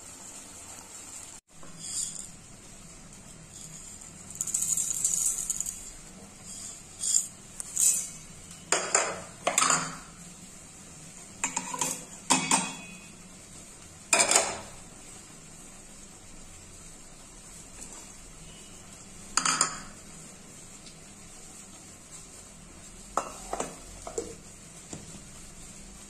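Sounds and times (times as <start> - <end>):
spices rattling in metal jar: 1.8 - 2.4, 3.4 - 8.2.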